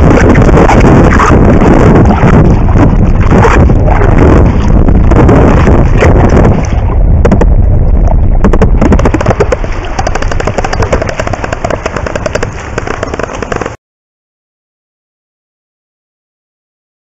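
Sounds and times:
underwater swimming splashes and bubbles: 0:00.0 - 0:12.8.

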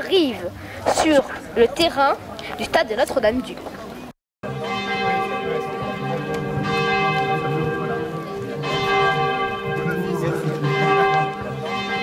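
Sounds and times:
church bells ringing: 0:04.4 - 0:12.0.

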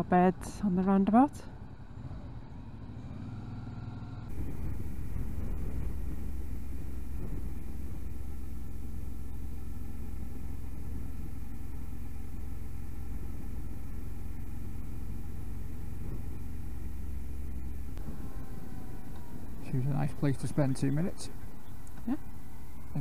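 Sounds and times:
motorcycle engine rumble: 0:00.0 - 0:23.0
wind noise: 0:04.3 - 0:08.9, 0:17.5 - 0:23.0.

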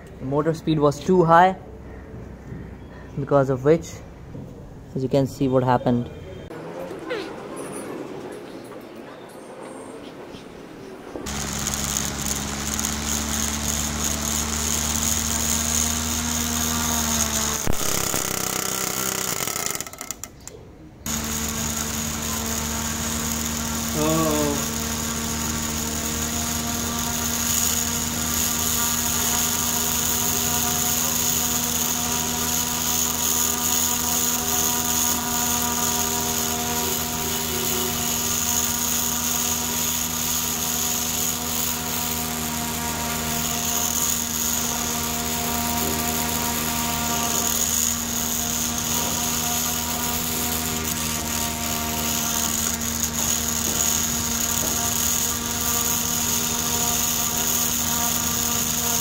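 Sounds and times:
small motor spinning propeller: 0:11.2 - 0:20.4, 0:21.0 - 0:59.0.

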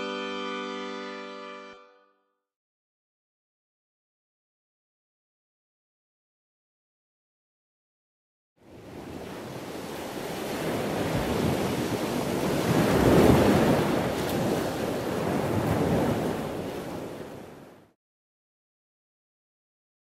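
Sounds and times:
ocean waves washing: 0:08.6 - 0:18.0.

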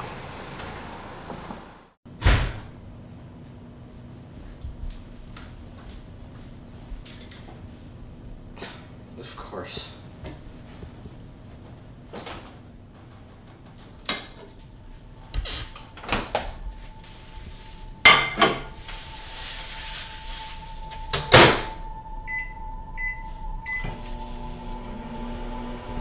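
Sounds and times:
steady hum: 0:02.7 - 0:26.0
microwave keypad beeps: 0:22.3 - 0:24.0.

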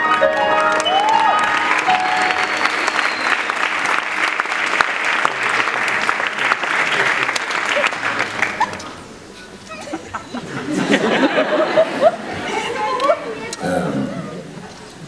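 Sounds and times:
audience applauding: 0:00.0 - 0:09.1
whistle: 0:02.2 - 0:03.6.

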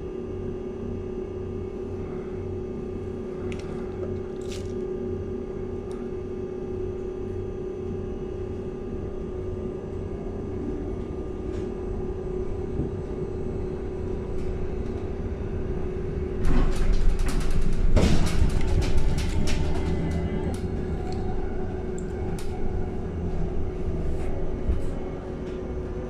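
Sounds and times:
electric bus cabin hum: 0:00.0 - 0:26.0
bus body rattling and knocking: 0:16.3 - 0:21.0.

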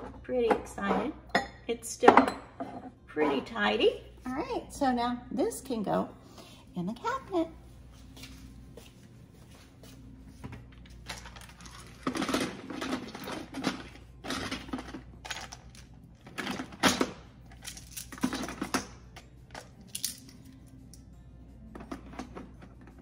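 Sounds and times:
plastic bottles clattering in basket: 0:11.1 - 0:15.6.

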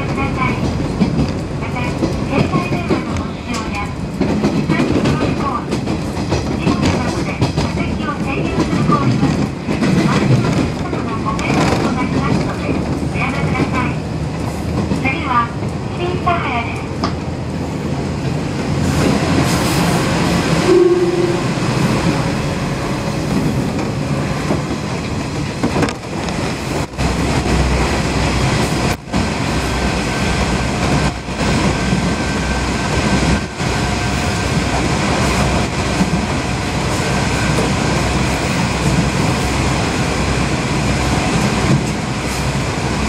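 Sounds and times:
deep tunnel rumble: 0:00.0 - 0:43.0
train wheels on track: 0:00.0 - 0:43.0
short horn-like tone: 0:20.6 - 0:21.6.

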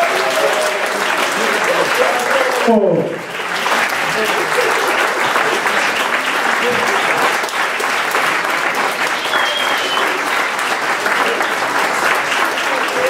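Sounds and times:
audience applauding: 0:00.0 - 0:13.0
high whistle: 0:09.2 - 0:10.2.

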